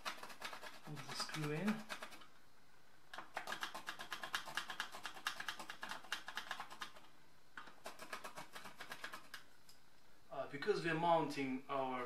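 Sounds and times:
pencil scribbling on drywall: 0:00.0 - 0:02.3, 0:07.6 - 0:09.4.

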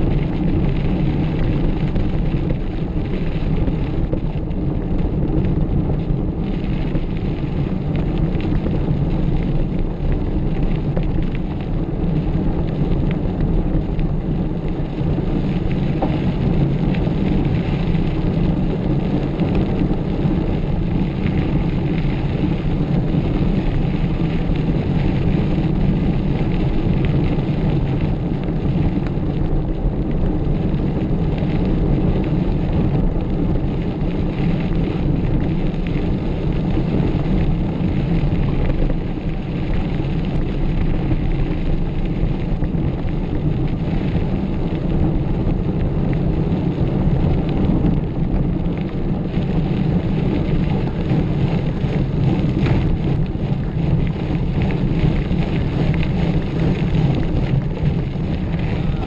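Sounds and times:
bike rattling over rough ground: 0:00.0 - 0:59.0
wind buffeting microphone: 0:00.0 - 0:59.0.

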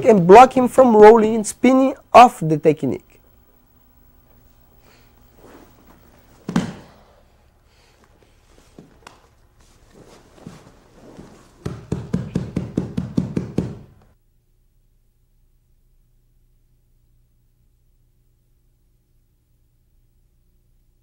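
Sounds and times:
heavy thud on a mat: 0:06.4 - 0:07.0
hand slaps on a mat: 0:06.5 - 0:07.0, 0:11.6 - 0:14.1.

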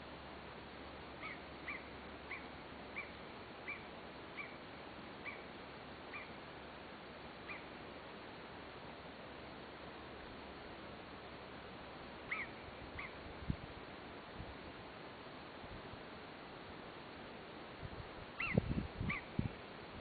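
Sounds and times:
animal short high calls: 0:18.4 - 0:19.3.

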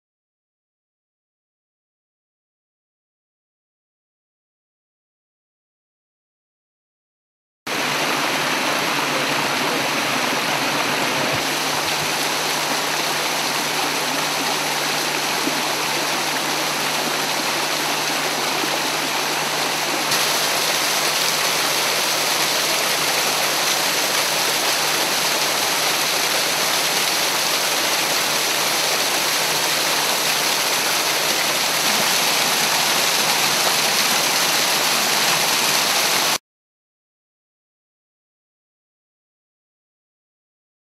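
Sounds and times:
water rushing over rocks: 0:07.7 - 0:36.4.

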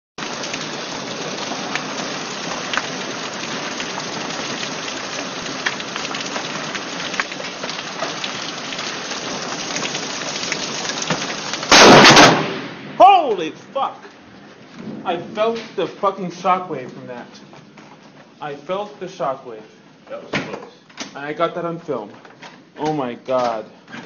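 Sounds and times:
steady rain falling: 0:00.2 - 0:24.0
sharp taps of raindrops: 0:01.6 - 0:11.7.

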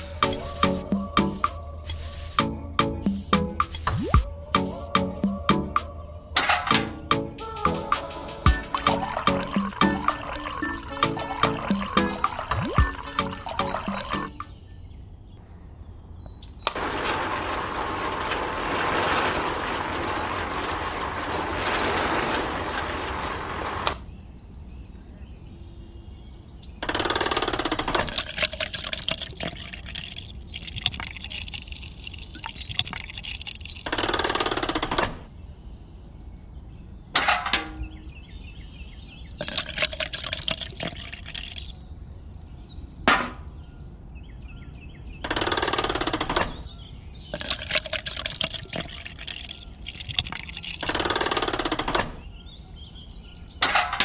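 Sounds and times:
liquid pouring into bucket: 0:08.5 - 0:14.4, 0:28.0 - 0:33.9, 0:39.4 - 0:41.8, 0:47.4 - 0:50.9.

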